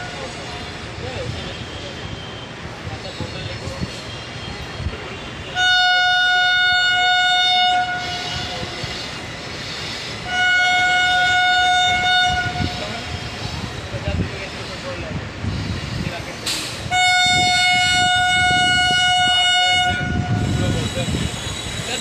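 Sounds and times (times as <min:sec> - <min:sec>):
electric locomotive horn blasts: 0:05.1 - 0:09.0, 0:10.2 - 0:13.2, 0:16.9 - 0:20.7.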